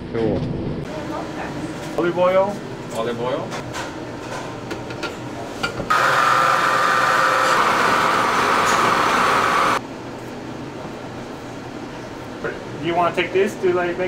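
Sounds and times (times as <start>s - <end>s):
food processor motor whining: 5.9s - 9.8s.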